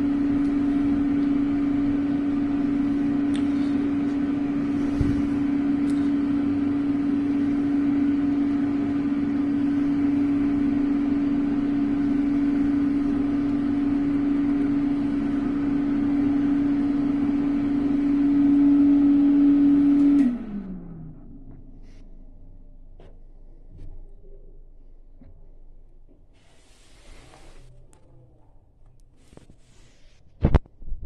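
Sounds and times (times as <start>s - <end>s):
electric hand dryer running: 0.0s - 21.7s.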